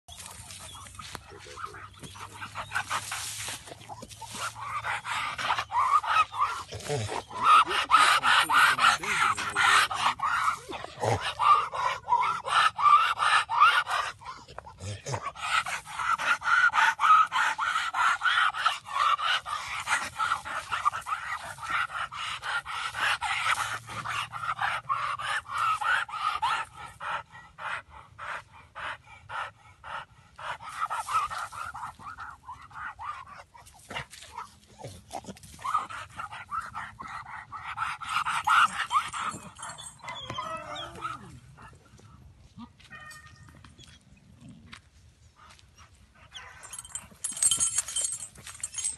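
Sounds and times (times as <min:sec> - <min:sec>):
dog panting hard: 0:00.3 - 0:40.1, 0:45.4 - 0:48.9
chain straining: 0:38.0 - 0:40.4, 0:46.4 - 0:48.9
dog whining: 0:38.5 - 0:41.4.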